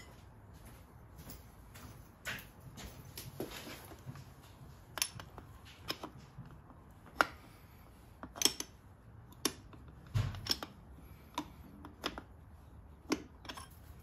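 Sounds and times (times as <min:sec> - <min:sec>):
socket wrench clicking: 0:08.2 - 0:12.3.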